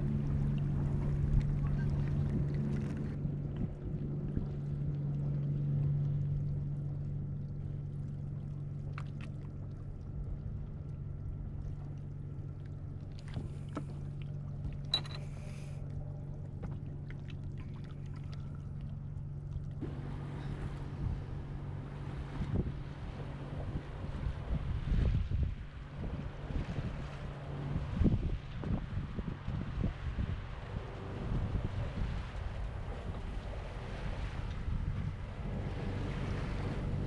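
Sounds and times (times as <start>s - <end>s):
wind and water hiss: 0.0s - 4.3s, 19.8s - 37.0s
boat engine humming: 0.0s - 37.0s.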